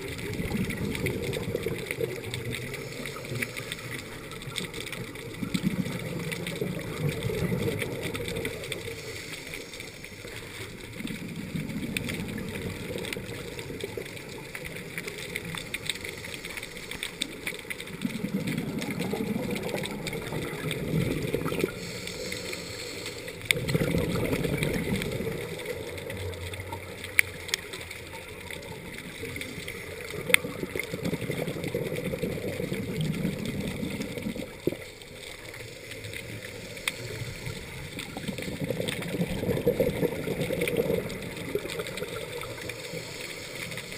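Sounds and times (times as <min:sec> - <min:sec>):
bubbly diver exhalations: 0:17.9 - 0:22.7, 0:23.5 - 0:25.9, 0:30.1 - 0:34.9, 0:37.4 - 0:42.6.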